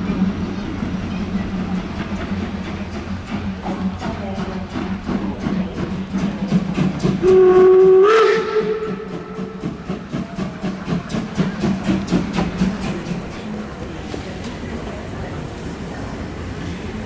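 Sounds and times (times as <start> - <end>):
locomotive chuffing: 0.0 - 17.0
steam whistle: 7.2 - 9.8.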